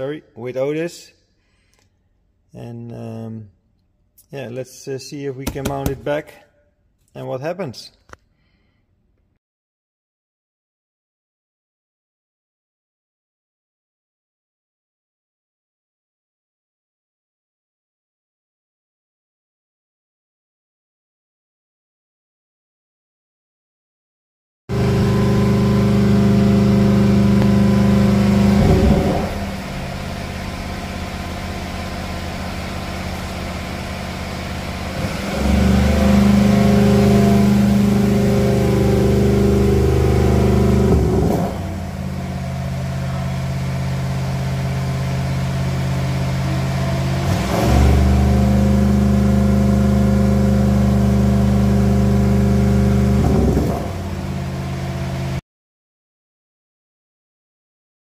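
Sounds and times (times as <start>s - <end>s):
car engine idling: 24.7s - 47.3s.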